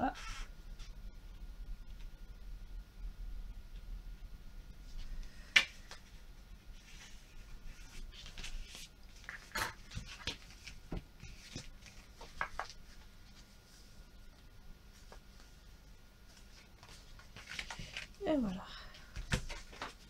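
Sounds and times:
paper scraping and rustling: 6.7s - 14.0s.

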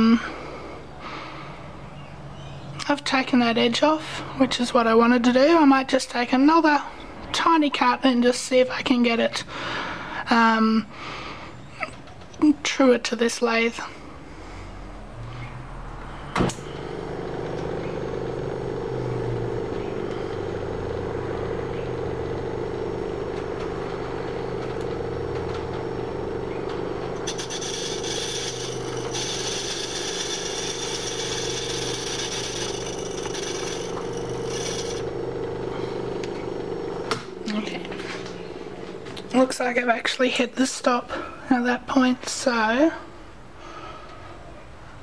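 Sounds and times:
lathe motor humming: 16.6s - 40.1s
cutting tool hissing on metal: 27.2s - 37.2s.

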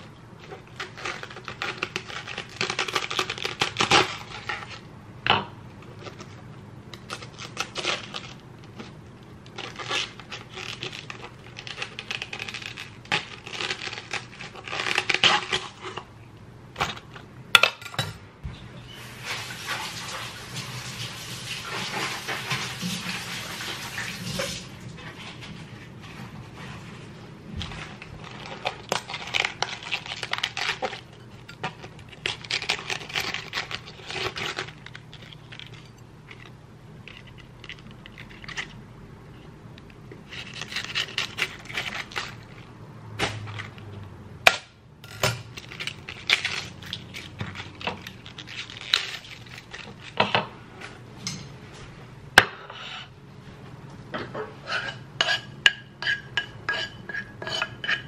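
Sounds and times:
lettuce leaves rustling and crackling: 0.0s - 4.9s, 7.0s - 16.0s, 19.0s - 38.8s, 45.5s - 50.2s
dishes and cutlery clinking: 54.2s - 58.0s.

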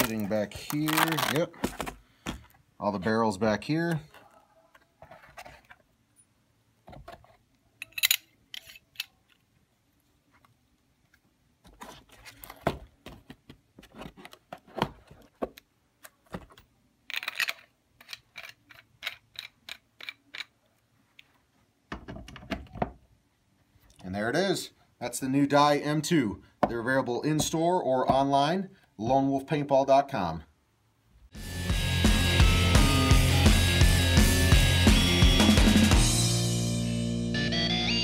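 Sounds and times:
clicks and taps of handled parts: 17.1s - 21.3s.

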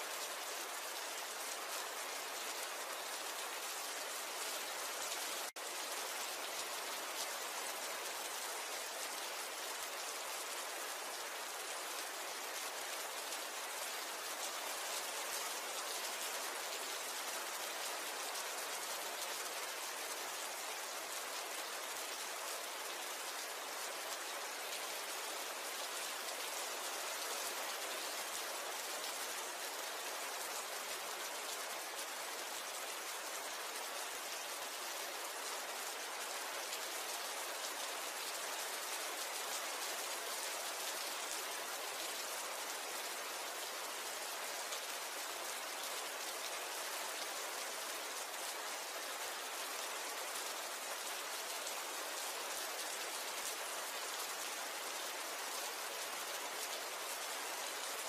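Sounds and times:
steady rainfall: 0.0s - 58.0s.

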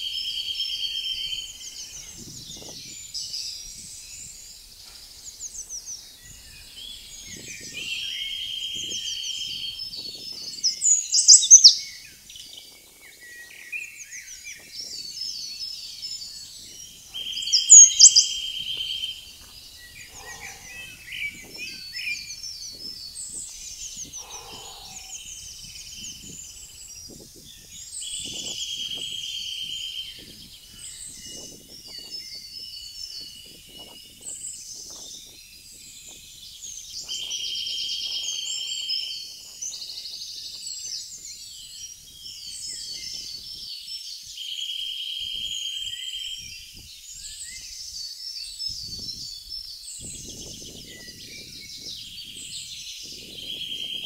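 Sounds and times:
songbirds singing: 0.0s - 54.0s
bird trilling: 10.9s - 11.8s, 17.1s - 22.5s, 23.7s - 26.3s.

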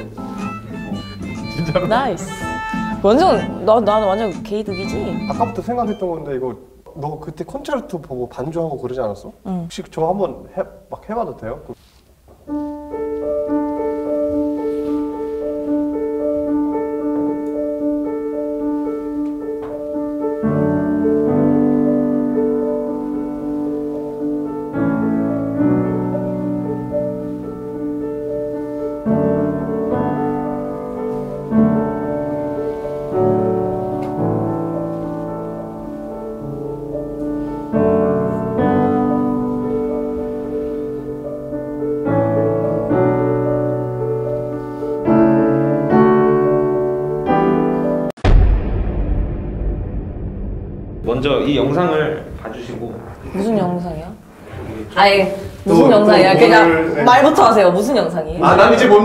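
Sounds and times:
improvised piano playing: 0.0s - 6.6s, 12.4s - 48.2s.

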